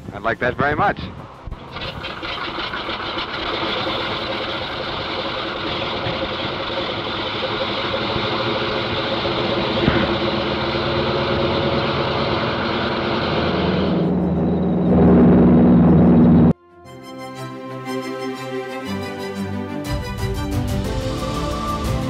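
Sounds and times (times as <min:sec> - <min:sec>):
radial aircraft engine running: 0:00.0 - 0:16.6.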